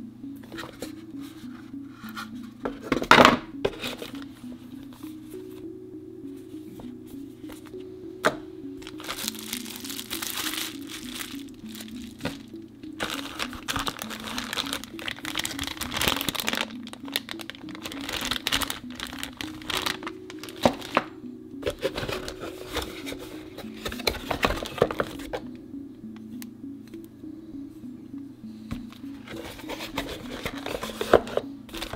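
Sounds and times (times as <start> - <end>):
background music melody: 0.0 - 31.9
plastic bags crinkling: 8.8 - 25.4, 29.3 - 31.9.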